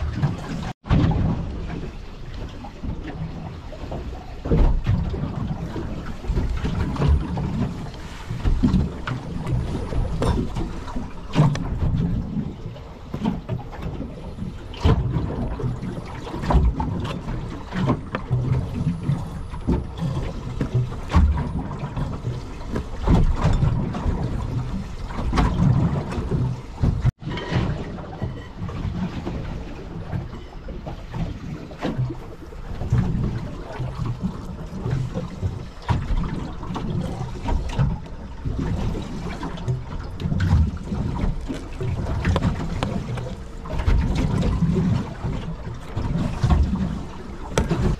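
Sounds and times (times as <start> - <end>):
water slapping boat hull: 0.0 - 47.9
wind buffeting microphone: 0.0 - 47.9
knocks and clicks: 41.2 - 45.4, 47.5 - 47.9.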